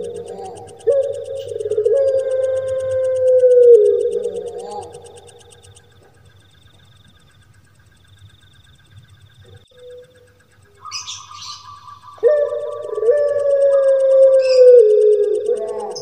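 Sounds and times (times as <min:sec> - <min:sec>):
dove long coo: 0:00.0 - 0:06.2, 0:09.5 - 0:16.0
dove chirps: 0:00.0 - 0:16.0
faint pulsing background: 0:00.0 - 0:16.0.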